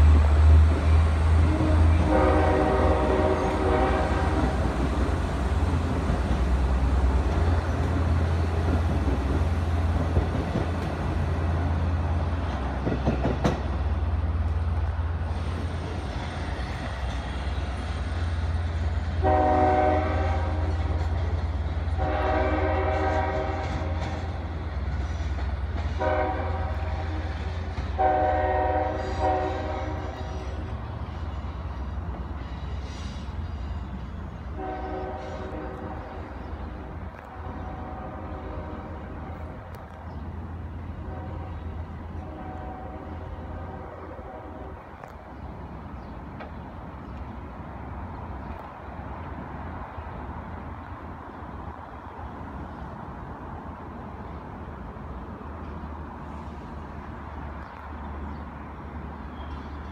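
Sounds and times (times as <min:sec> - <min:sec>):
rumble of moving trains: 0:00.0 - 0:59.9
electric train horn blasts: 0:00.8 - 0:04.8, 0:19.0 - 0:24.4, 0:25.8 - 0:31.8, 0:34.5 - 0:36.4, 0:37.1 - 0:39.7, 0:40.8 - 0:44.9.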